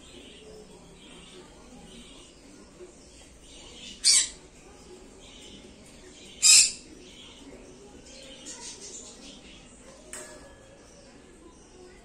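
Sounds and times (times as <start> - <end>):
parrot calls: 3.9 - 4.4.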